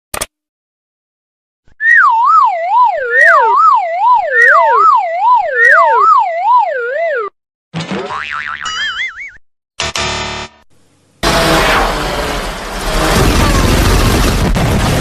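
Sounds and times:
cartoon wobbling descending tone: 0:01.8 - 0:07.4.

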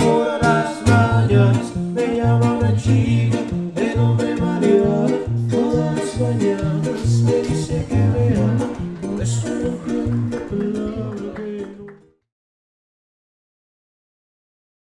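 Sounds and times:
deep bass guitar notes: 0:00.0 - 0:11.8
strummed guitar: 0:00.0 - 0:12.0.

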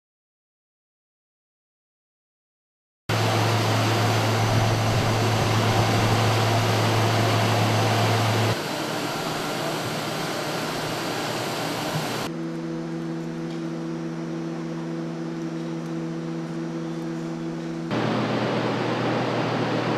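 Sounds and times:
jet engine rush: 0:03.1 - 0:12.3, 0:17.9 - 0:19.9
low machinery hum: 0:03.1 - 0:19.9.

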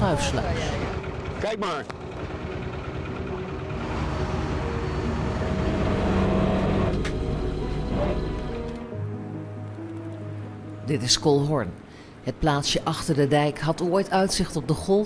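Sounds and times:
boat engine running: 0:00.0 - 0:08.9.

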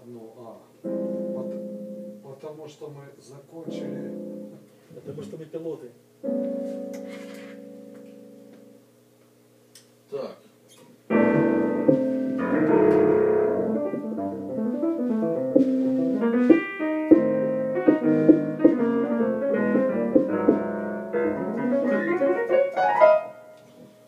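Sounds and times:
electronic keyboard playing piano chords: 0:00.8 - 0:02.6, 0:03.6 - 0:04.7, 0:06.2 - 0:08.9, 0:11.1 - 0:23.7.

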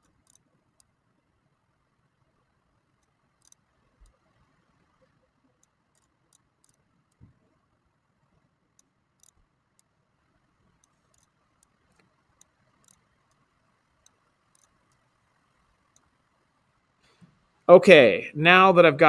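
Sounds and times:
faint computer mouse clicks: 0:00.0 - 0:00.9, 0:03.0 - 0:04.2, 0:08.8 - 0:09.9, 0:10.8 - 0:15.1.

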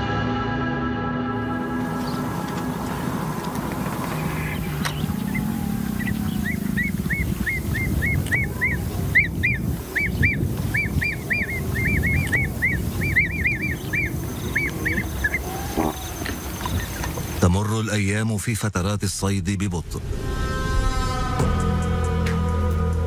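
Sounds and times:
steady low rumble: 0:01.4 - 0:17.4
birds chirping: 0:01.4 - 0:18.2.

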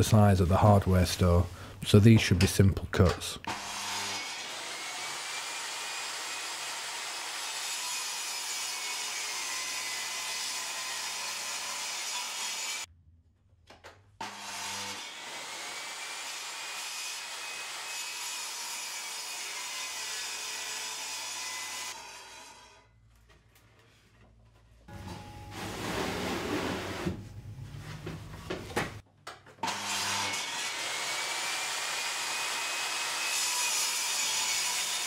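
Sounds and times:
table saw cutting plywood: 0:03.5 - 0:12.9, 0:14.2 - 0:22.8, 0:24.9 - 0:27.2, 0:29.6 - 0:35.0.

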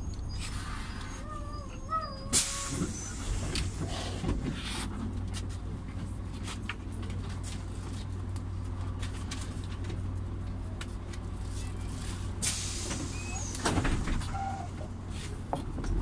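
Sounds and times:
bus engine hum: 0:00.0 - 0:16.0
compressed air hiss: 0:12.4 - 0:13.2.

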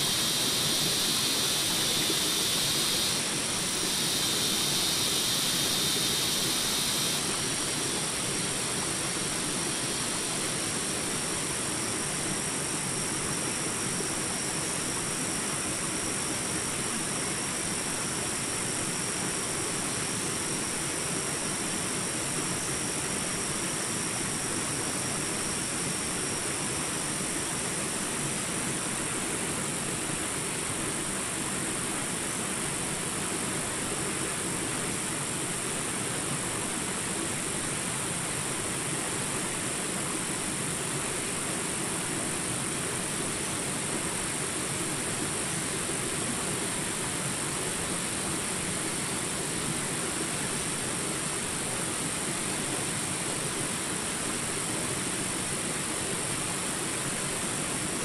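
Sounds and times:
high bright hiss: 0:00.0 - 0:25.1.

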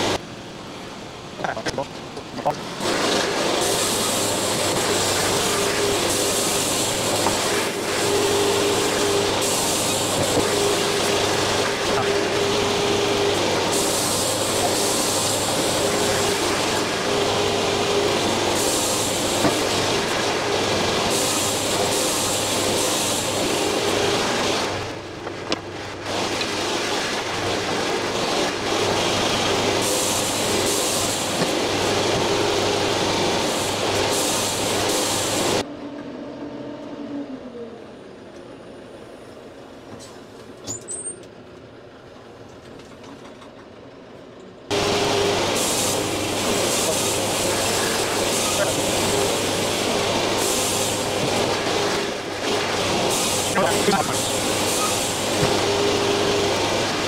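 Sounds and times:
machine hum: 0:00.0 - 0:39.3, 0:44.7 - 0:57.0
band sawmill sawing log: 0:02.5 - 0:25.0, 0:44.7 - 0:57.0.

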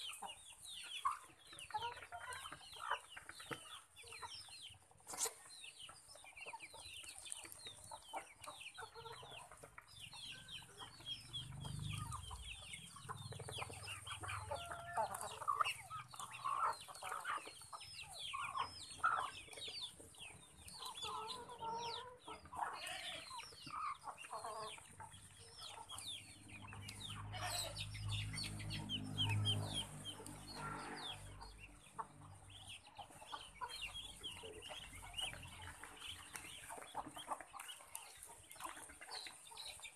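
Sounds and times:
chickens clucking: 0:00.0 - 0:39.9
high peeping calls: 0:03.7 - 0:39.9.

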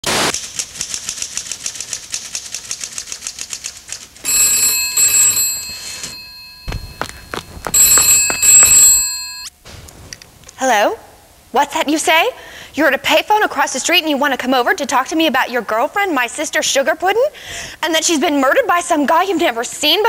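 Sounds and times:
typewriter keys clacking: 0:00.3 - 0:04.3
telephone bell ringing: 0:04.2 - 0:09.5
knocks: 0:06.6 - 0:09.9.

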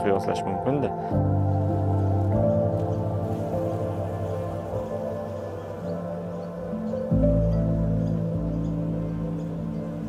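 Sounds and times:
slow ambient music: 0:00.0 - 0:10.0.

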